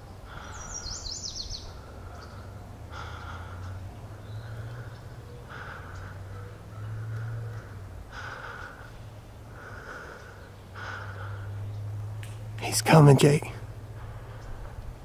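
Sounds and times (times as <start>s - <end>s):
person breathing: 0.3s - 0.9s, 1.6s - 11.7s, 13.9s - 14.8s.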